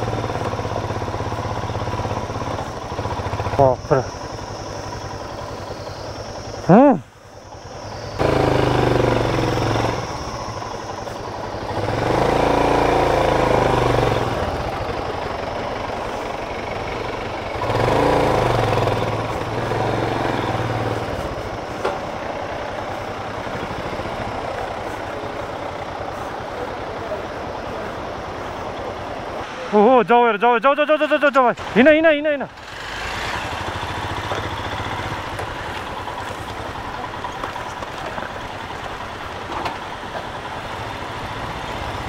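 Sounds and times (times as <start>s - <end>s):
motorcycle engine revving: 0.0s - 29.4s, 31.6s - 42.0s.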